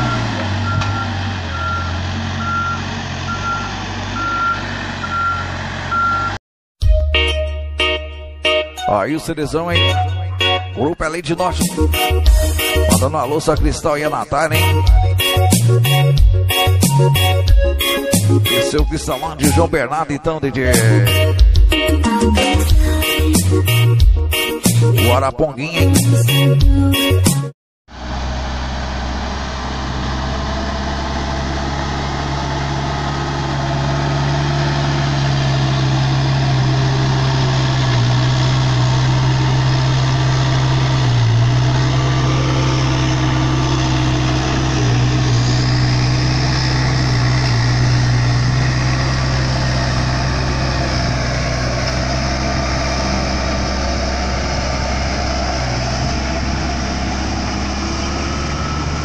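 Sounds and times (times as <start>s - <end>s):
diesel engine running: 0.0s - 6.4s, 11.6s - 19.8s, 27.9s - 59.0s.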